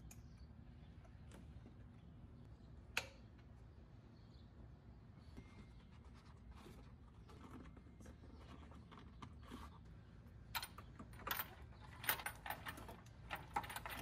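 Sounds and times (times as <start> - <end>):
metal parts clicking and clinking: 10.4 - 14.0.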